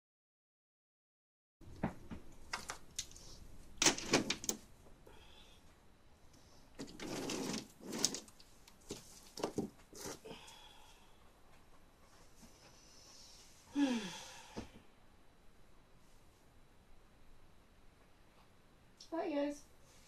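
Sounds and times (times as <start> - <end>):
scraping rustle: 6.8 - 10.3.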